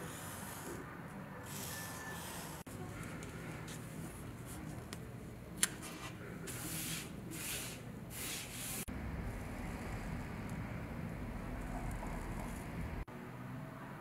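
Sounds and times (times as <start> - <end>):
low steady hum: 8.9 - 13.1.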